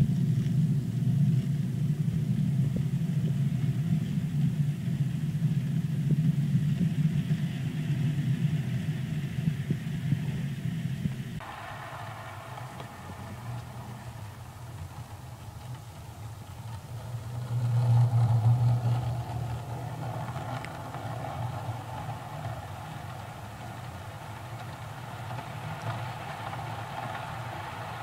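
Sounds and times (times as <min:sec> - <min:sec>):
model train humming on track: 0:01.7 - 0:28.0.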